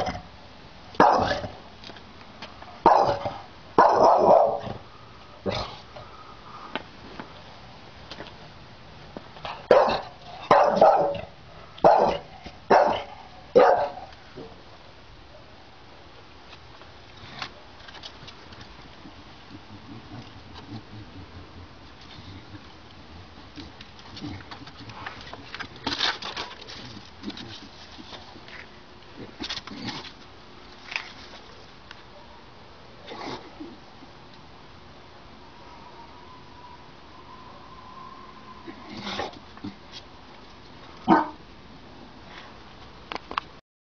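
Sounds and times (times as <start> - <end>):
dog barking: 1.0 - 1.5, 2.8 - 4.8, 9.7 - 14.5, 41.1 - 41.4
footsteps on tiled patio: 6.6 - 11.2.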